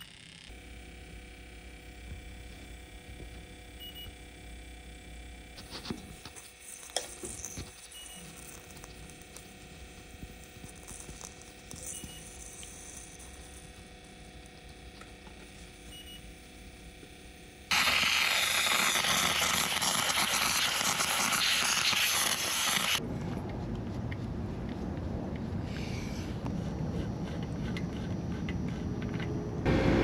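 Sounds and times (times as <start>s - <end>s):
faint steady hum: 0.0s - 20.7s
steam cleaner hissing: 17.7s - 23.0s.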